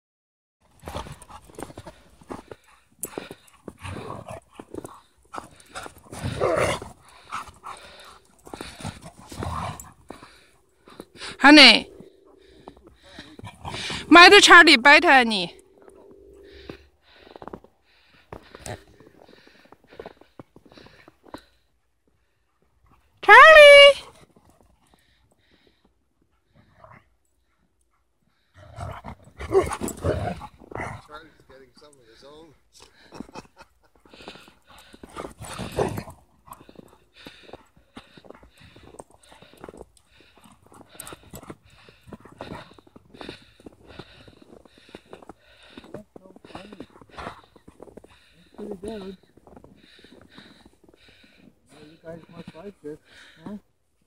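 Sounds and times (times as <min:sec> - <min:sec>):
dogs growling: 0:00.6 - 0:14.1, 0:15.5 - 0:21.0, 0:28.4 - 0:31.5, 0:32.8 - 0:51.4
running paws in snow: 0:00.6 - 0:14.1, 0:15.7 - 0:53.4.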